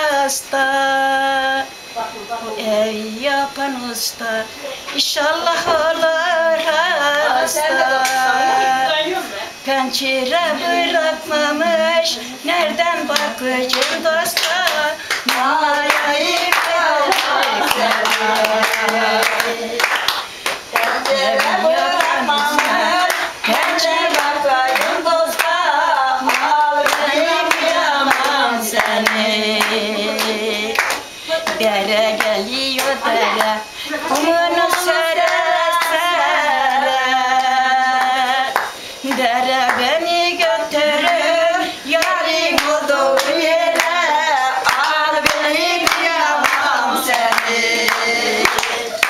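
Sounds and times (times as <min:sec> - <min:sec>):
women singing unaccompanied: 0:00.0 - 0:02.0, 0:02.6 - 0:49.0
hand claps: 0:12.6 - 0:25.6, 0:26.2 - 0:33.5, 0:37.4 - 0:39.9, 0:42.0 - 0:44.0, 0:44.6 - 0:49.0.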